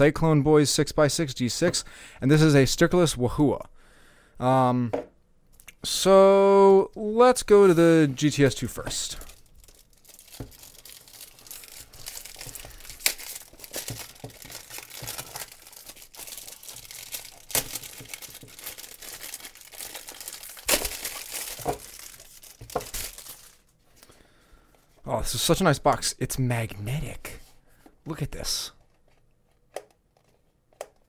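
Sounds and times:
plastic wrapping crinkling: 8.2s - 23.8s.

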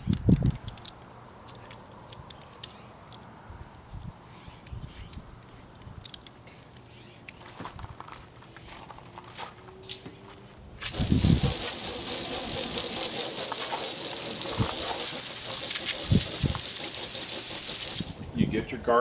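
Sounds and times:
water jet hitting window: 10.8s - 18.2s
water spraying from hose nozzle: 10.8s - 18.2s.

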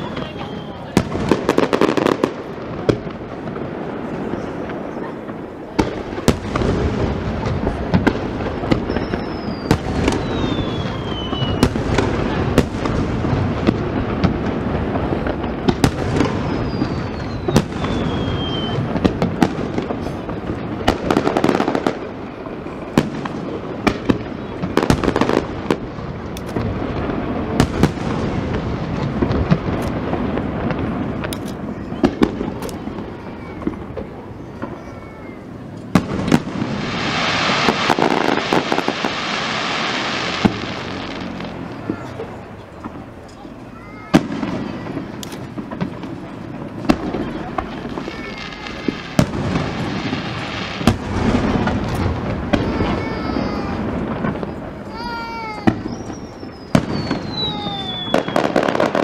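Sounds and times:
falling firework whistle: 0.0s - 2.3s, 8.0s - 13.0s, 15.4s - 20.3s, 31.6s - 42.8s, 44.0s - 59.0s
fireworks bangs and crackle: 0.0s - 59.0s.

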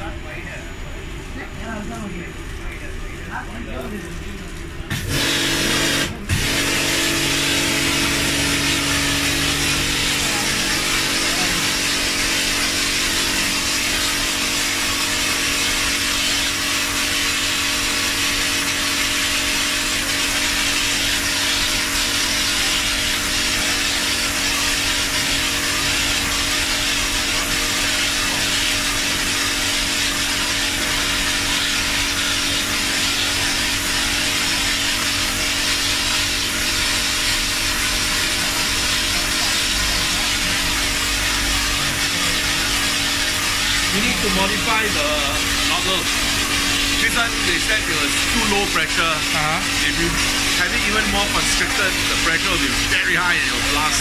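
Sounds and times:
water jet hissing on tiles: 1.3s - 54.0s
motor hum: 4.9s - 54.0s.

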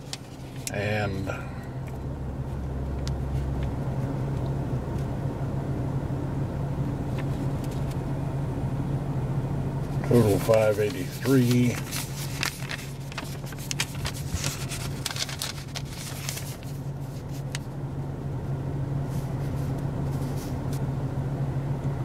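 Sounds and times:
paper receipt rustling: 0.0s - 1.3s, 9.9s - 17.7s
car engine idling: 0.0s - 22.0s.

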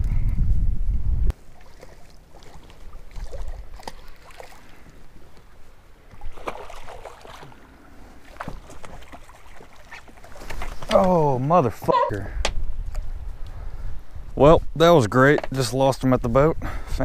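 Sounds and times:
fish splashing at water surface: 1.4s - 5.5s, 6.1s - 10.9s.

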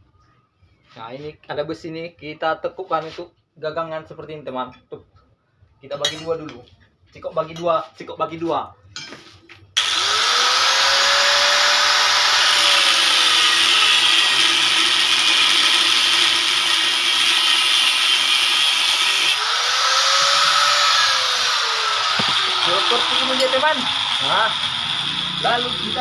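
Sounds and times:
angle grinder cutting metal rod: 9.8s - 26.0s.

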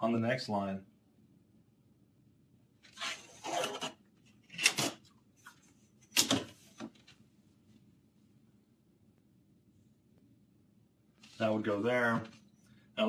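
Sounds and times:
metal ruler scraping paper: 2.9s - 5.0s.

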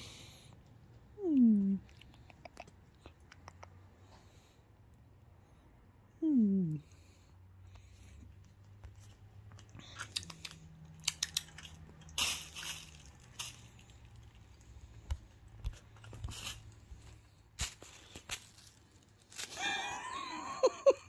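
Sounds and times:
kitten crunching and chewing: 0.2s - 4.4s, 7.7s - 19.6s.

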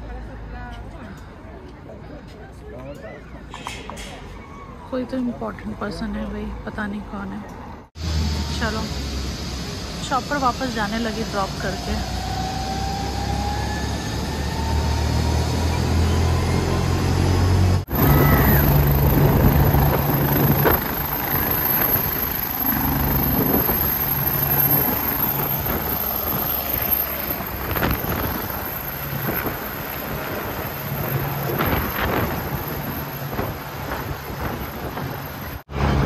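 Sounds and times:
rising whine: 8.0s - 36.0s
helicopter rotor and engine hum: 11.0s - 36.0s.

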